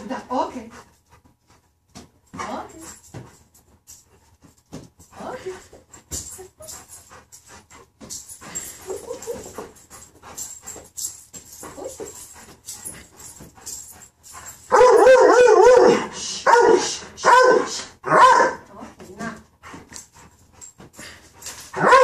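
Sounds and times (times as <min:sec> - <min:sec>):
dog whining and yelping: 0:08.4 - 0:10.8, 0:14.4 - 0:17.4, 0:21.7 - 0:22.0.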